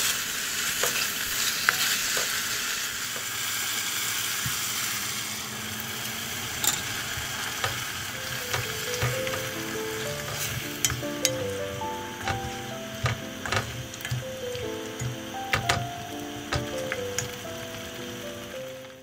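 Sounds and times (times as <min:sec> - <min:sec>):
food sizzling in a pot: 0:00.0 - 0:19.0
wooden spoon knocking a pot: 0:07.6 - 0:17.4
background music simple melody: 0:08.0 - 0:19.0.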